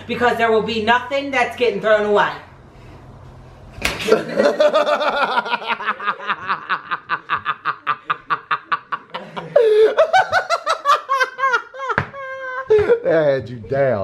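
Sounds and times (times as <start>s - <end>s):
child laughing: 4.0s - 13.0s.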